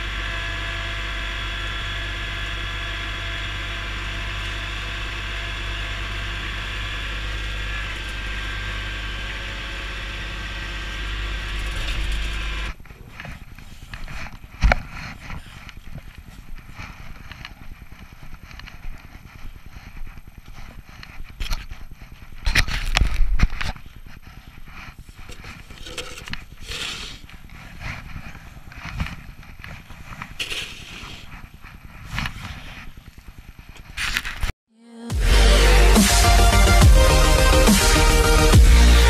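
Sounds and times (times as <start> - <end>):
diesel tractor engine running: 0.0 - 12.8
snow shovel scraping snow: 24.3 - 33.1.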